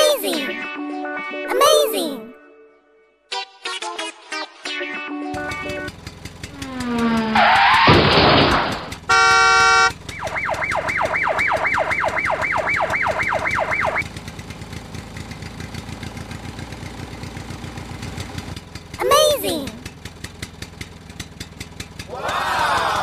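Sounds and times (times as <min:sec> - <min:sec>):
fast engine chugging: 0:05.4 - 0:23.0
short horn blast: 0:09.1 - 0:09.9
warbling siren: 0:09.1 - 0:14.0.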